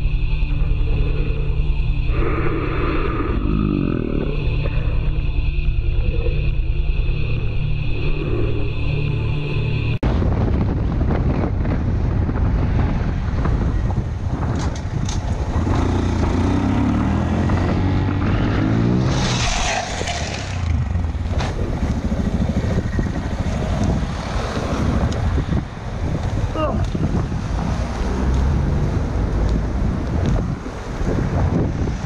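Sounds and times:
wind noise on microphone: 0:09.9 - 0:32.0
small motorcycle engine revving: 0:15.5 - 0:25.1.

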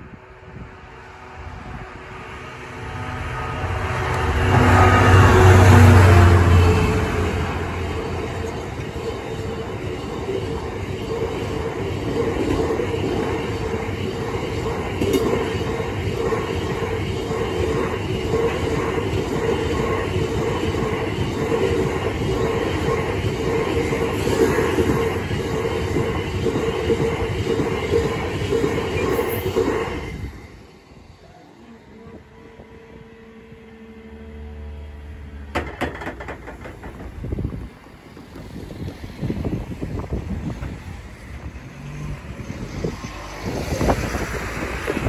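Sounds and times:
freight wagon wheels rumbling: 0:35.6 - 0:41.5.

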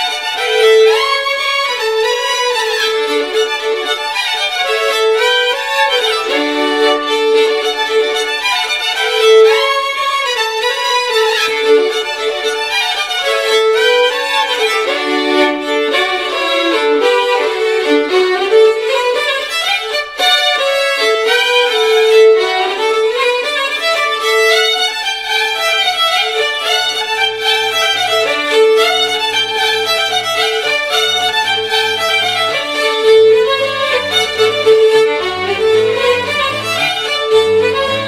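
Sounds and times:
quick violin melody: 0:00.0 - 0:38.0
steady drone: 0:27.2 - 0:38.0
low bass line: 0:33.2 - 0:38.0.

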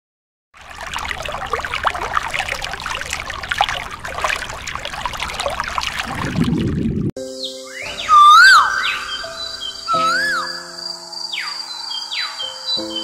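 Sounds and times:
faint low pump hum: 0:00.6 - 0:07.1
water trickling and splashing: 0:00.6 - 0:07.2.

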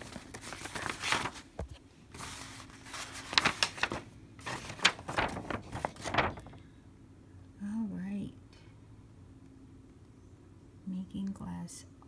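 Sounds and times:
paper and plastic bags rustling: 0:00.0 - 0:06.6.

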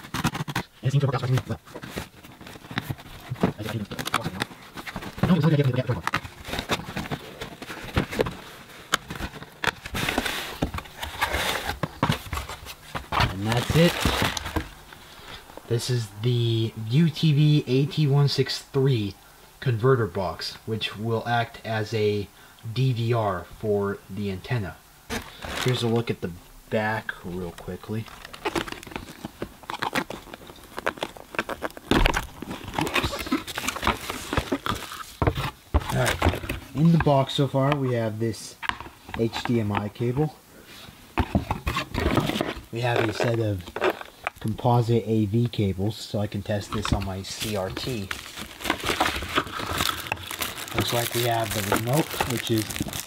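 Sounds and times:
packing tape tearing: 0:00.0 - 0:14.8, 0:27.9 - 0:35.3, 0:41.7 - 0:44.4, 0:46.8 - 0:53.0
cardboard box crackling: 0:00.0 - 0:15.0, 0:25.1 - 0:26.1, 0:27.3 - 0:37.4, 0:41.1 - 0:44.6, 0:46.5 - 0:53.0.

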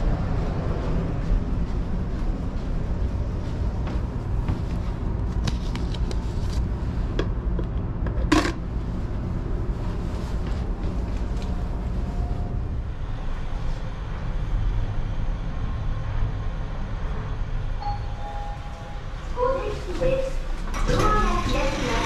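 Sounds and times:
steady low rumble: 0:00.0 - 0:22.0.

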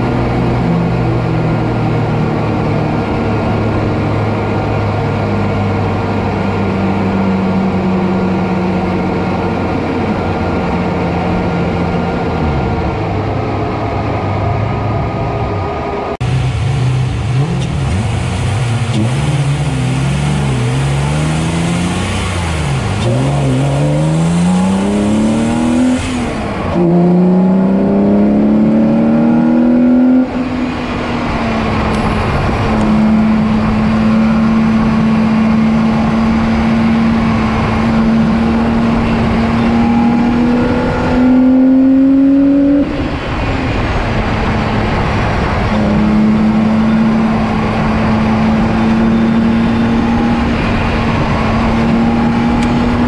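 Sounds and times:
race car engine accelerating: 0:00.0 - 0:53.0
road noise: 0:00.0 - 0:53.0
rushing wind: 0:00.0 - 0:53.0.

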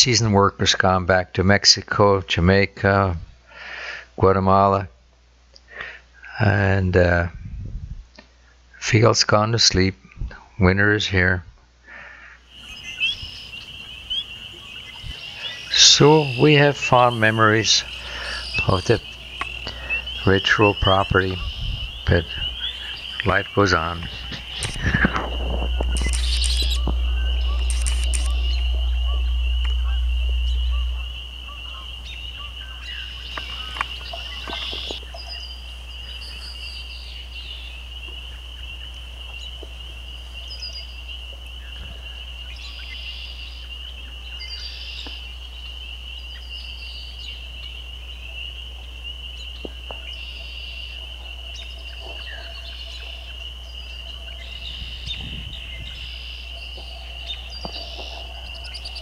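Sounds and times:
frogs chorus: 0:11.9 - 0:59.0
short bird calls: 0:12.2 - 0:48.3, 0:49.3 - 0:59.0
low rumble: 0:16.7 - 0:36.5.

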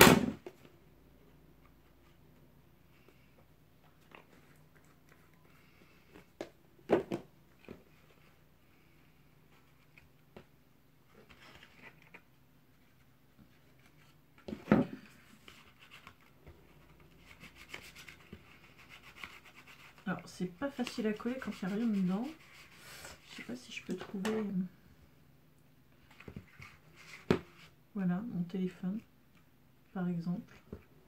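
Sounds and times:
paper rustling and rubbing: 0:11.1 - 0:14.2, 0:15.1 - 0:23.5, 0:26.0 - 0:27.8.

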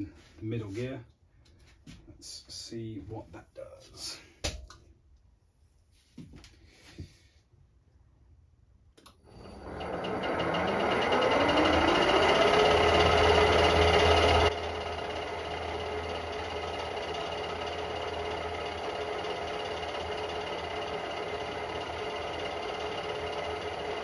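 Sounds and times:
milling machine spindle whine: 0:09.1 - 0:24.0.

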